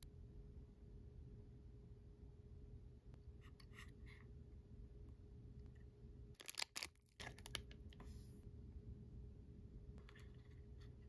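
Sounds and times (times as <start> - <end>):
faint steady hum: 0.0 - 11.0
plastic packaging crinkling: 6.4 - 7.8.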